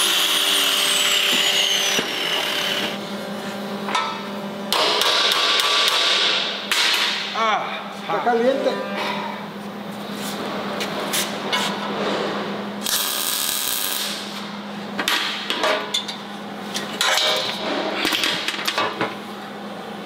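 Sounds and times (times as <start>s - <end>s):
welding arc crackling: 12.8s - 14.4s.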